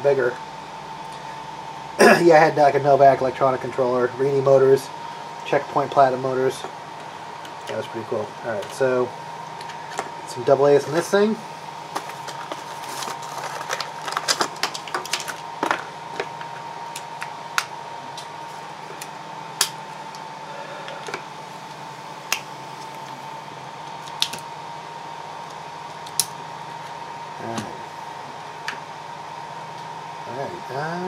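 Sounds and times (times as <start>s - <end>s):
plastic blister pack crinkling: 11.9s - 17.6s.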